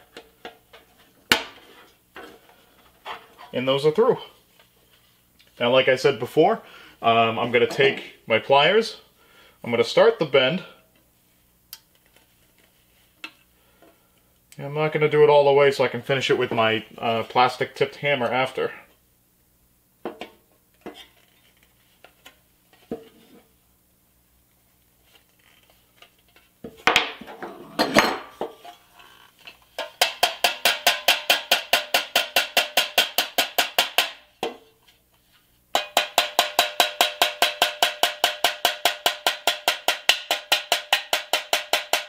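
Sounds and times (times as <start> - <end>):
hammer tapping on sheet steel: 29.8 - 34.6, 35.8 - 42.0.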